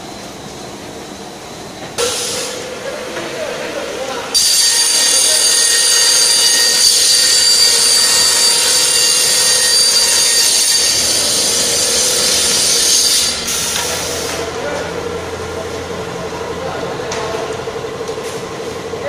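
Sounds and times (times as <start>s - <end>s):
saw cutting with high whine: 4.1s - 14.5s.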